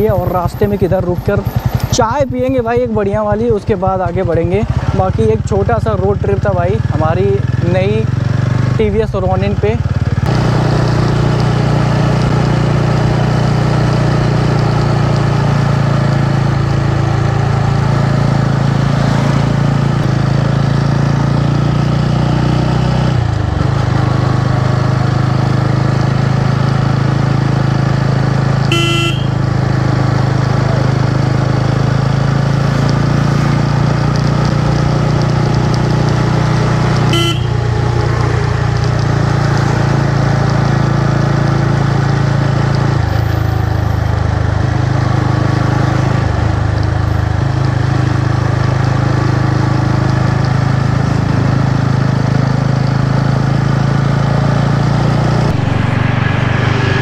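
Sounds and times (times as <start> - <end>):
motorcycle engine running: 0.0 - 42.4
horn toots: 28.7 - 29.4, 37.1 - 37.8.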